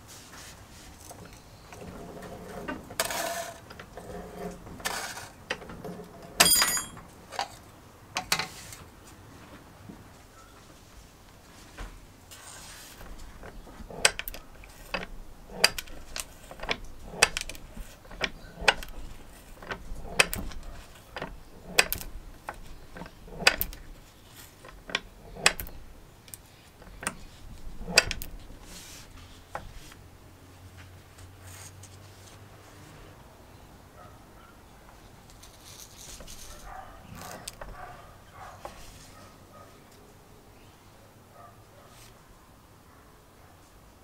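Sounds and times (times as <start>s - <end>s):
metal shear clicking and snapping: 13.0s - 28.7s.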